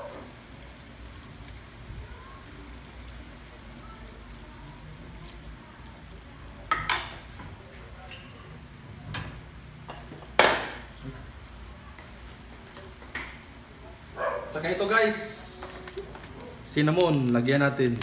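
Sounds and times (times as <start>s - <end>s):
food sizzling in a wok: 0.0s - 7.4s.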